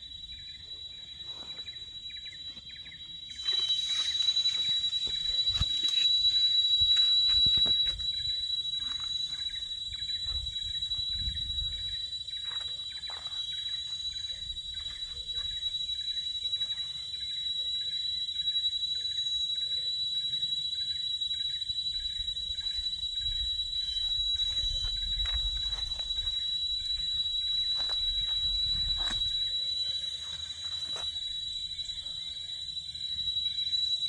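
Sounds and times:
insects droning: 0:00.0 - 0:34.0
pulsing insect chirp: 0:00.0 - 0:34.0
wind rumble on microphone: 0:09.8 - 0:12.1, 0:22.2 - 0:29.5.

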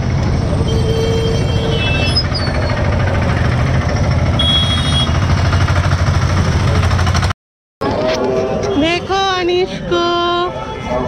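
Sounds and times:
low rumble of traffic: 0:00.0 - 0:11.0
horn-like tone: 0:04.4 - 0:05.2.

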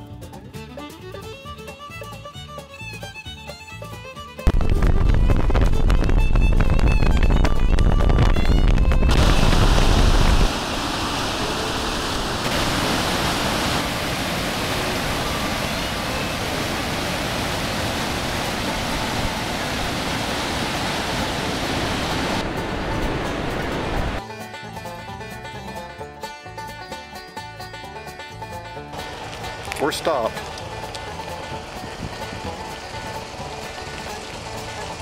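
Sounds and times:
wind buffeting microphone: 0:04.5 - 0:11.7, 0:13.7 - 0:24.2, 0:30.6 - 0:35.0
river rapids rushing: 0:09.1 - 0:24.2, 0:29.0 - 0:35.0.

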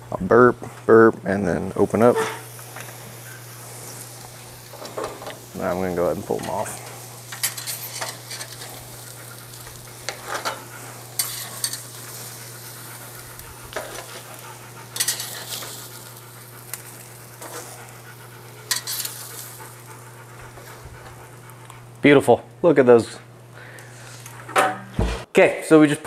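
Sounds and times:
steaks sizzling on grill: 0:01.4 - 0:24.4
metal tongs clinking on grates: 0:04.7 - 0:14.4, 0:15.0 - 0:16.0, 0:18.7 - 0:19.8.

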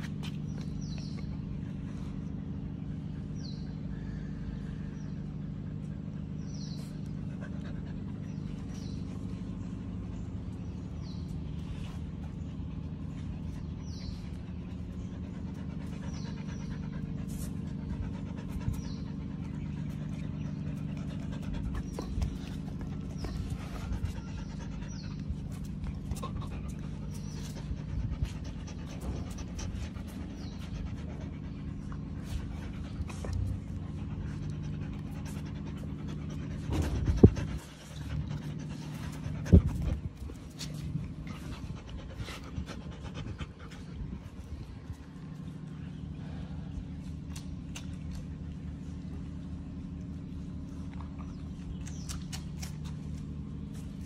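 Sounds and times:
steady low hum: 0:00.0 - 0:54.0
dog panting: 0:05.8 - 0:48.6.

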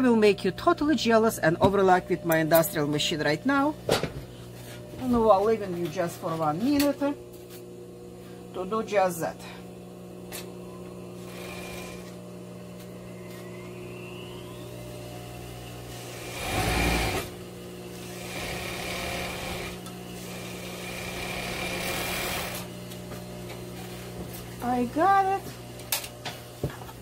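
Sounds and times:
steady low hum: 0:00.0 - 0:27.0
sewing machine stitching: 0:11.2 - 0:12.2, 0:16.1 - 0:17.3, 0:18.0 - 0:22.7.

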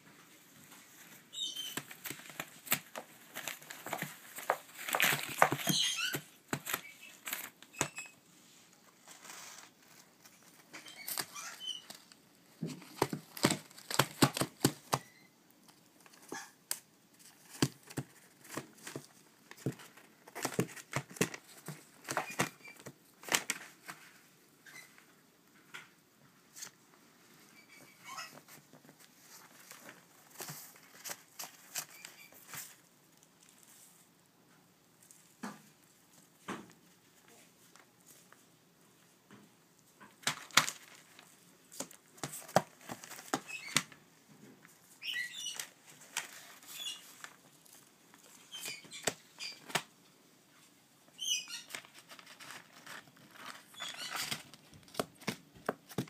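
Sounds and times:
paper crinkling and rustling: 0:00.5 - 0:08.1, 0:08.8 - 0:15.2, 0:17.2 - 0:24.3, 0:28.2 - 0:34.1, 0:40.1 - 0:44.0, 0:44.6 - 0:49.9, 0:51.2 - 0:56.0.

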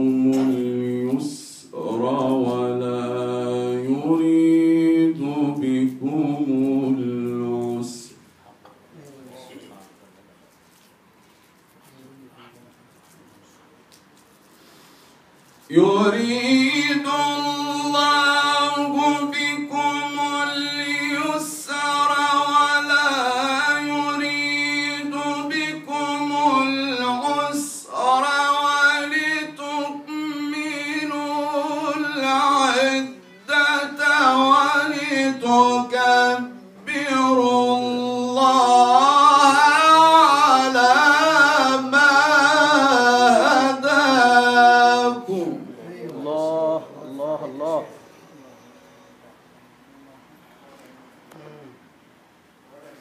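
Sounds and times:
man reciting melodically: 0:00.0 - 0:08.3, 0:15.6 - 0:48.0.

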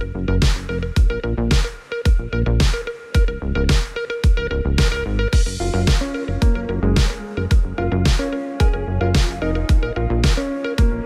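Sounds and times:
electronic dance music: 0:04.8 - 0:11.0.

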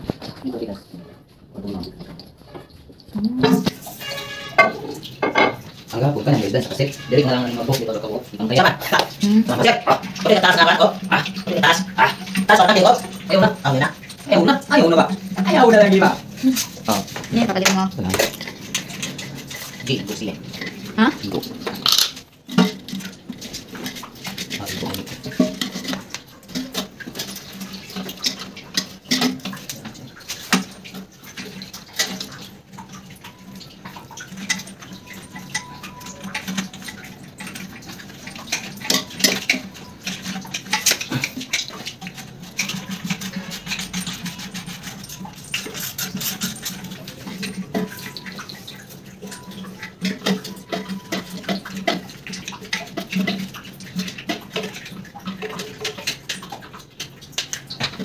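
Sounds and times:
plastic parts clicking and knocking: 0:21.3 - 0:32.5.

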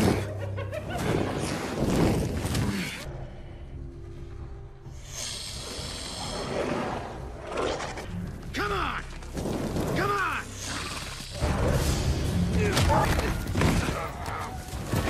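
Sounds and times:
creatures snarling and hissing: 0:05.0 - 0:08.1, 0:10.6 - 0:12.6.

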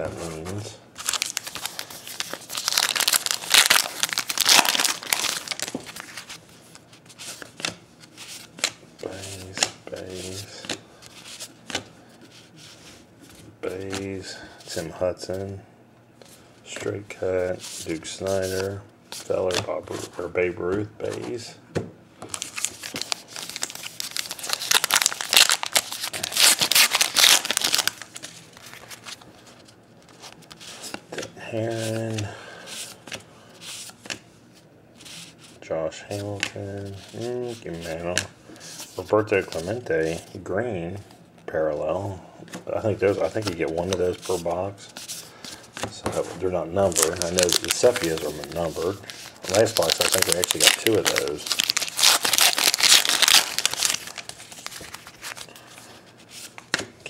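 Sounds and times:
wrapper tearing and crinkling: 0:01.0 - 0:06.3, 0:22.3 - 0:29.2, 0:46.8 - 0:55.5.

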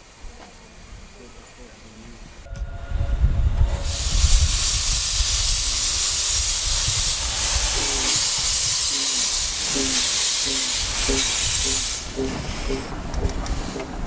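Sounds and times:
steam hissing: 0:00.0 - 0:14.0
locomotive low rumble: 0:02.0 - 0:14.0.

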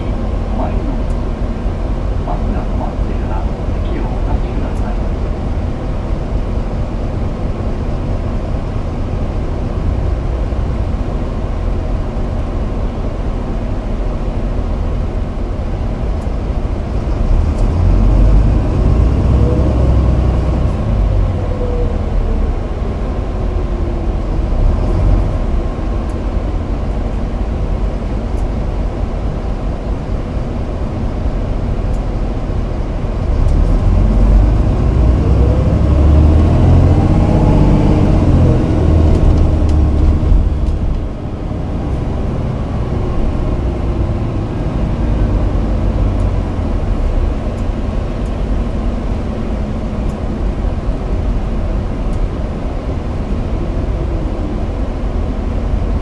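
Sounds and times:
bus engine and road rumble: 0:00.0 - 0:56.0
engine whine rising: 0:33.0 - 0:51.9.

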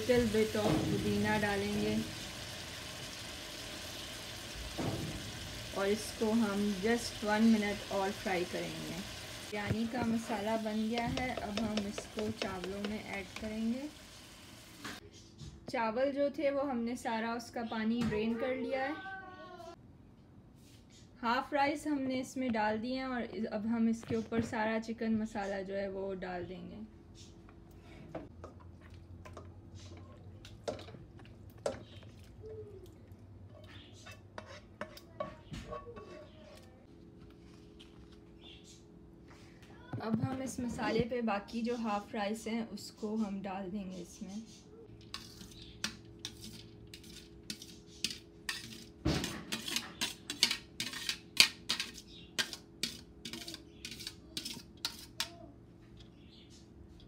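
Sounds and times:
spoon scraping nonstick pan: 0:06.7 - 0:13.7, 0:33.5 - 0:36.7, 0:45.0 - 0:55.3.

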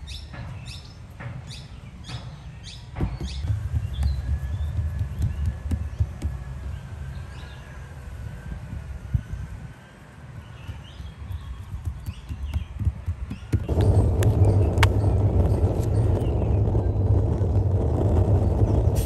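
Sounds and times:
birds chirping: 0:00.0 - 0:17.3
fingertips patting dough: 0:03.3 - 0:06.4, 0:10.7 - 0:14.3.

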